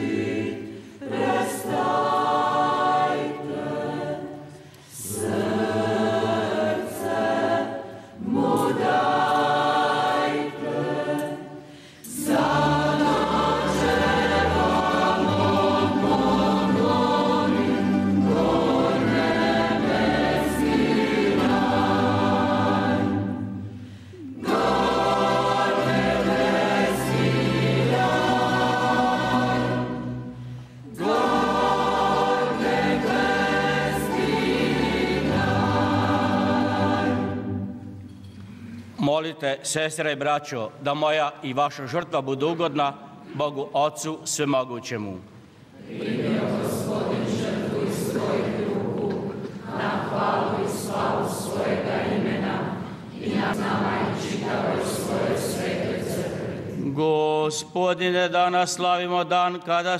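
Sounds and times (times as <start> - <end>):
choir singing a hymn: 0.0 - 39.2, 45.6 - 59.9
string orchestra accompanying: 12.1 - 38.7.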